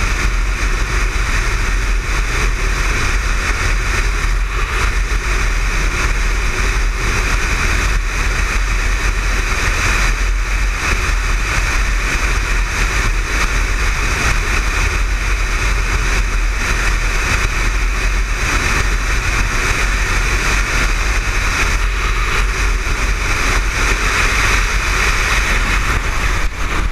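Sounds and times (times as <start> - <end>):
motorcycle engine cruising: 0.0 - 26.9
road noise: 0.0 - 26.9
wind rushing over microphone: 0.0 - 26.9.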